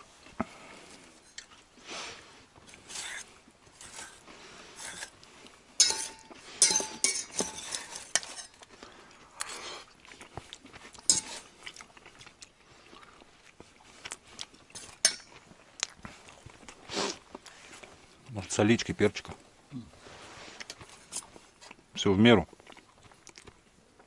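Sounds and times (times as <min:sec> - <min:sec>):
metal spoon clinking on bowl: 0:05.8 - 0:08.6.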